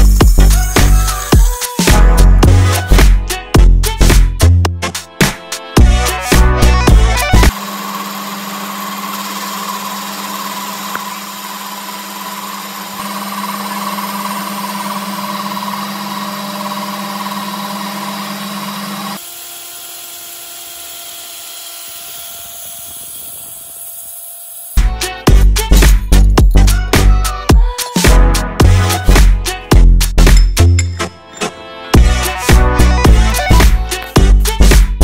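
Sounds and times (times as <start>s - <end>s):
metal lathe humming: 7.0s - 24.8s
drill press drilling steel: 7.1s - 24.8s.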